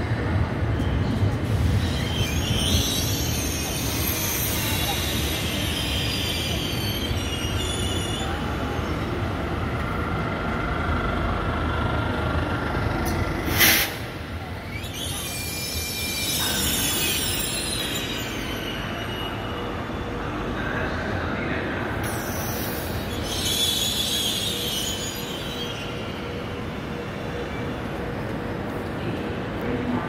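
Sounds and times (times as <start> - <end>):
train rumble: 0.0 - 30.0
train wheels squealing: 0.6 - 9.7, 13.4 - 21.2, 22.0 - 28.1.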